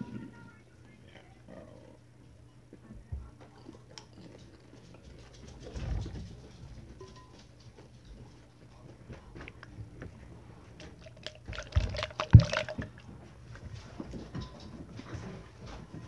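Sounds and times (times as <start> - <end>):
popcorn being chewed: 3.3 - 15.3.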